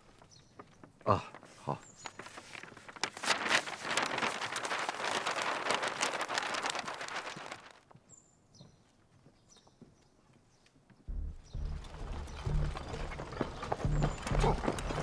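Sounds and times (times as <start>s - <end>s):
horses' hooves clattering: 11.1s - 15.0s.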